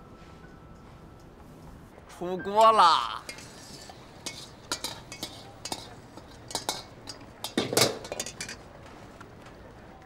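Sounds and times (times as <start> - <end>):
spatula scraping a wok: 3.2 - 8.6
cookware clinks: 3.3 - 8.6.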